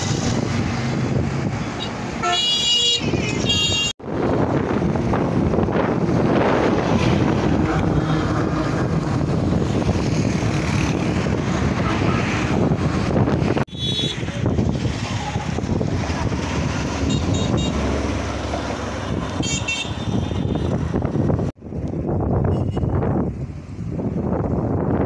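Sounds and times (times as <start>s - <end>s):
wind buffeting microphone: 0.0s - 1.8s, 3.0s - 25.0s
highway traffic passing: 0.0s - 25.0s
heavy truck passing: 4.0s - 13.6s, 14.2s - 21.5s.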